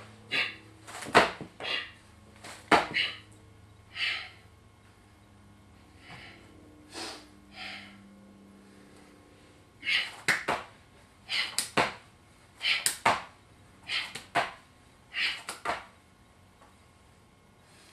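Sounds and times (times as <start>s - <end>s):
hands slapping mat: 0.3s - 1.8s, 2.4s - 3.1s, 9.9s - 12.0s, 12.7s - 13.3s, 13.9s - 14.6s, 15.2s - 15.9s
soft breathing: 3.9s - 4.6s, 5.8s - 10.2s
sharp exhale: 6.0s - 8.0s.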